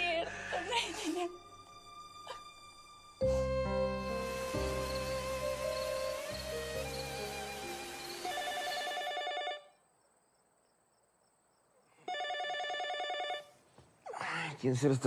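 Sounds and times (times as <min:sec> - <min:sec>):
soft music: 0:00.0 - 0:09.7
telephone ringing: 0:08.3 - 0:09.8, 0:12.0 - 0:13.6.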